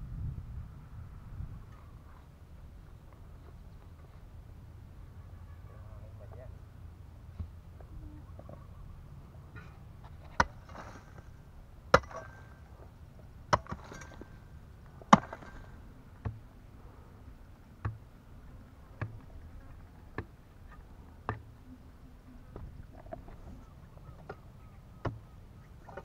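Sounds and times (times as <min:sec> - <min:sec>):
digging tool striking termite mound: 0:11.9 - 0:12.6, 0:13.5 - 0:14.4, 0:15.0 - 0:16.4.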